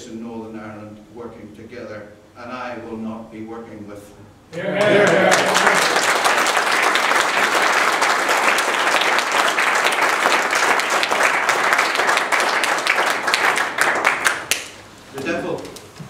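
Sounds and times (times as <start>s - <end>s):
audience applauding: 4.6s - 14.8s.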